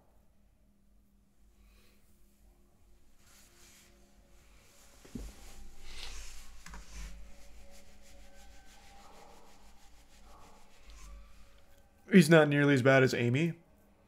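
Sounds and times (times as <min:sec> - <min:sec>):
rubbing and rustling: 0:03.0 - 0:11.9.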